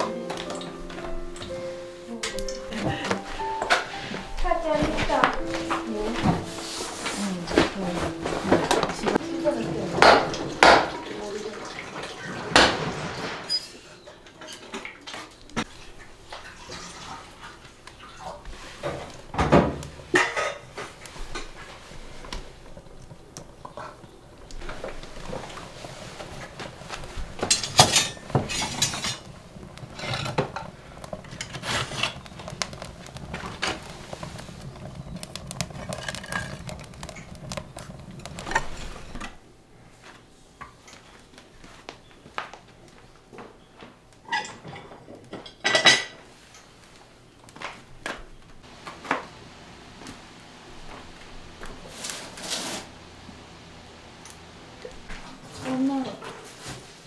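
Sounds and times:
pots and metal clinking: 0.0s - 39.5s, 43.6s - 46.8s.

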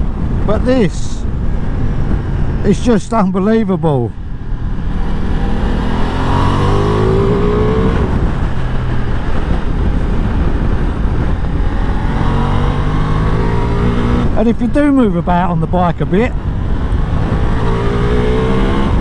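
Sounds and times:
wind and road noise: 0.0s - 19.0s
motorcycle engine revving: 4.4s - 14.4s, 16.4s - 19.0s.

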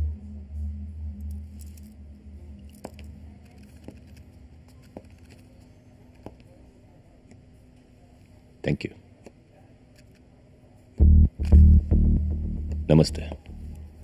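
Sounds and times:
low droning background score: 0.0s - 3.5s, 11.0s - 14.0s
faint steady hum: 0.0s - 14.0s.

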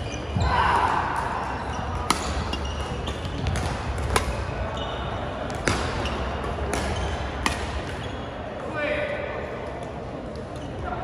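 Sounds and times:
shoes squeaking on court: 0.0s - 0.8s, 1.4s - 8.6s, 10.3s - 11.0s
sports hall background noise: 0.0s - 11.0s
rackets hitting shuttlecock: 0.8s - 4.6s, 5.5s - 8.0s.

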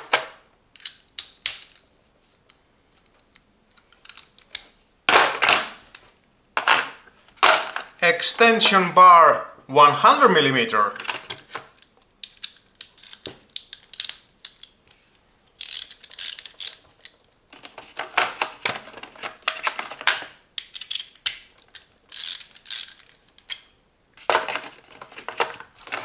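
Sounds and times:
ratchet wrench clicking rapidly: 15.6s - 16.8s, 22.1s - 23.0s.

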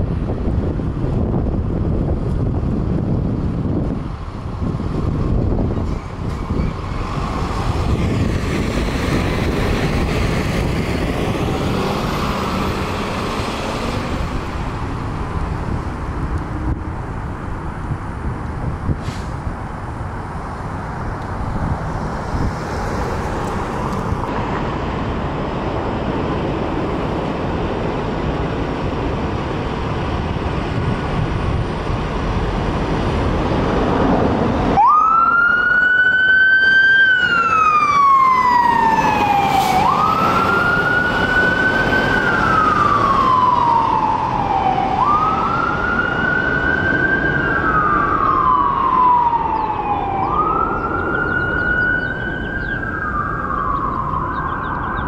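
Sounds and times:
heavy truck engine: 0.0s - 35.2s, 37.2s - 55.0s
road noise: 0.0s - 55.0s
fire truck siren wailing: 33.2s - 55.0s.

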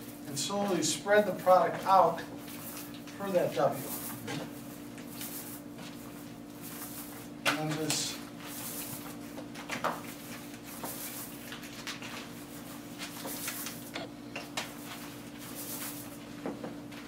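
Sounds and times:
steady low hum: 12.4s - 16.3s.

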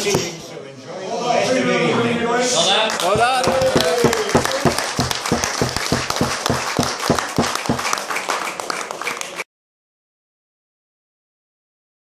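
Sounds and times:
group clapping: 2.9s - 9.5s.

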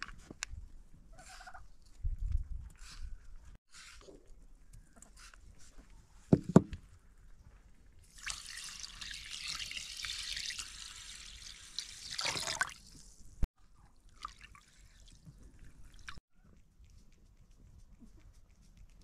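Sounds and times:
water pouring into a bowl: 8.1s - 12.9s, 14.0s - 16.2s.

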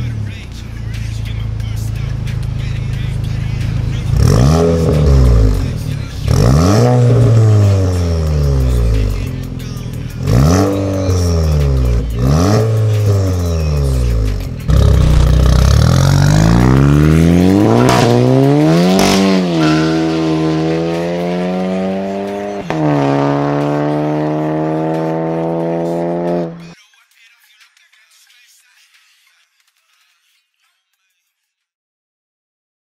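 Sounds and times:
car engine revving: 0.0s - 26.8s
exhaust cracks: 10.2s - 25.6s.

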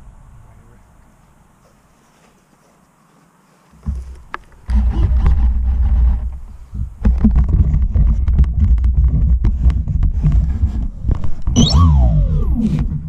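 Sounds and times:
camera handling rumble and knocks: 3.8s - 11.6s
whine falling in pitch: 11.4s - 13.0s.

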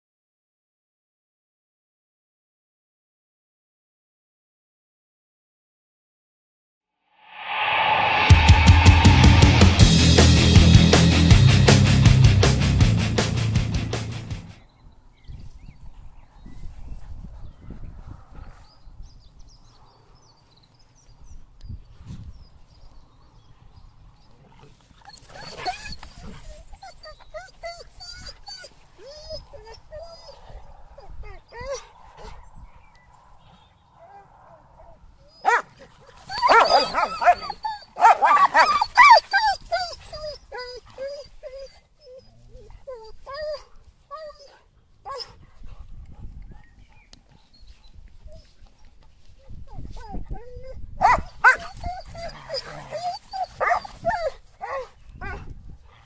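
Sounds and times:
dog yelping: 35.2s - 45.4s, 49.7s - 55.4s.

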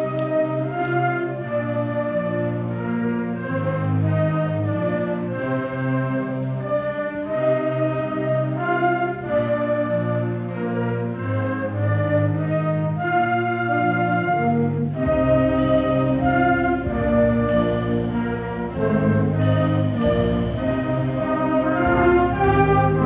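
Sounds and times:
concert band playing: 14.1s - 23.0s.

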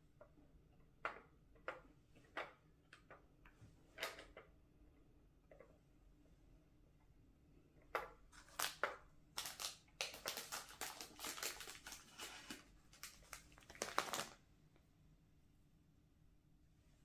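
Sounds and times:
foil wrapper crinkling: 8.4s - 8.8s, 9.4s - 14.4s.

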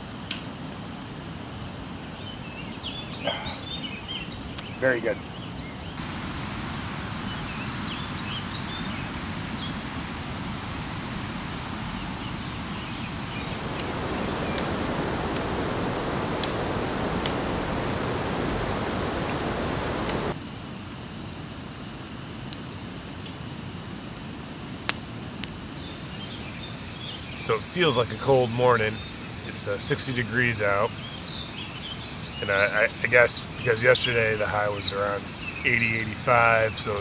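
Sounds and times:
campfire crackling and popping: 0.0s - 6.6s, 13.0s - 37.0s
outdoor hiss: 0.0s - 37.0s
faint bird chirps: 2.1s - 6.0s, 25.8s - 37.0s.

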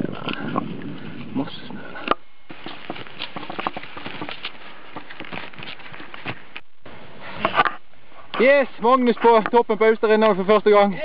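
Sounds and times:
skis crunching in snow: 2.5s - 6.6s.

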